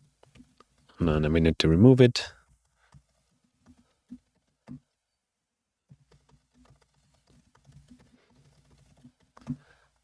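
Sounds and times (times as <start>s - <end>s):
computer keyboard typing: 5.9s - 9.8s.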